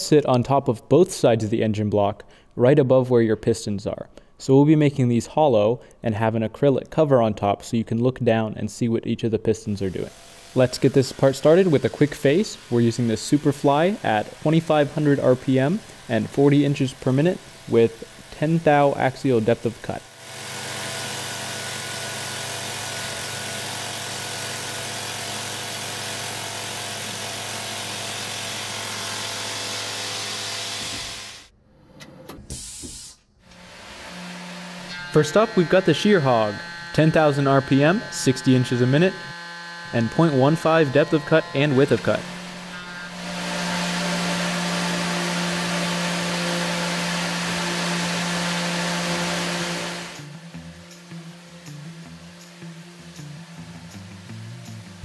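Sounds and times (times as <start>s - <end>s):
milling machine cutting metal: 9.9s - 31.5s, 33.5s - 54.9s.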